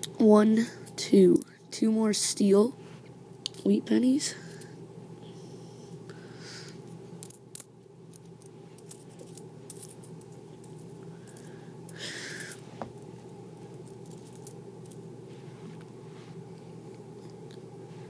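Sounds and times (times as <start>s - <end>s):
coins clinking: 7.2s - 15.1s.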